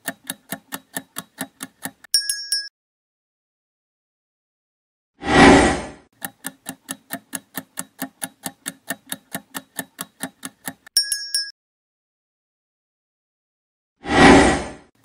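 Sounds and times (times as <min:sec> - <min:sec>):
clock-like ticking: 0:00.0 - 0:02.5, 0:06.2 - 0:11.5.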